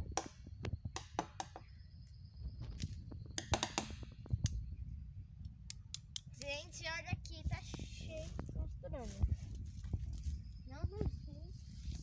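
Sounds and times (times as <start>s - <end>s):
footsteps crunching on dry leaves: 8.0s - 10.4s.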